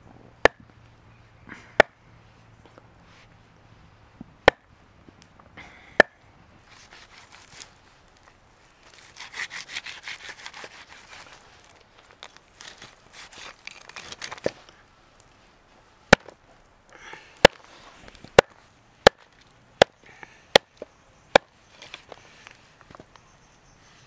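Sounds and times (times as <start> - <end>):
blade chopping strokes: 6.0 - 7.8, 8.9 - 11.7, 12.6 - 14.6
scraping and rustling: 6.6 - 15.5.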